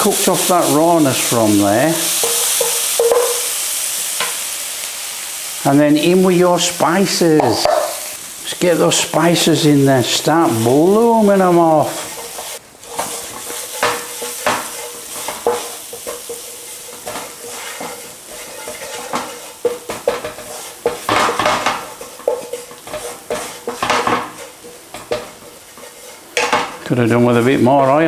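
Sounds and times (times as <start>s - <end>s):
spices sizzling in oil: 0.0s - 28.0s
wooden spatula scraping pan: 8.7s - 28.0s.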